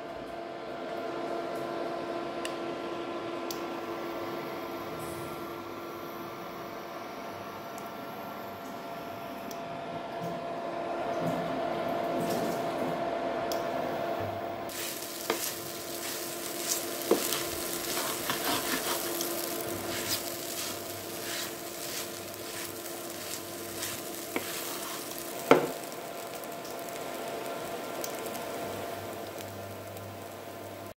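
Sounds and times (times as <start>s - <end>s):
spatula scraping pan: 14.7s - 25.9s
food sizzling in frying pan: 14.7s - 30.9s.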